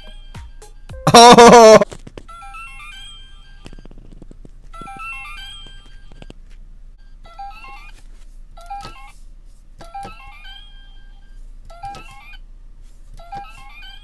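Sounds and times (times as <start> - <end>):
electronic toy jingle of beeps: 0.0 - 0.9, 2.3 - 3.9, 4.8 - 6.3, 7.0 - 8.0, 9.8 - 12.4, 13.2 - 14.0.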